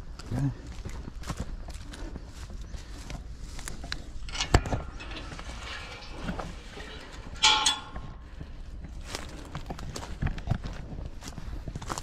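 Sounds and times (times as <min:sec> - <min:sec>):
footsteps: 0:00.7 - 0:12.0
metal gate clanging: 0:04.0 - 0:08.4
metal gate knock: 0:04.2 - 0:08.3.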